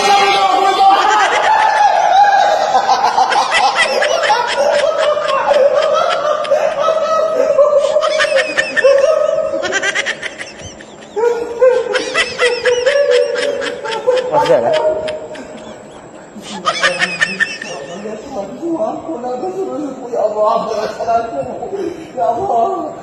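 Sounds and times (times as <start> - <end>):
person laughing hard: 0.0 - 18.2.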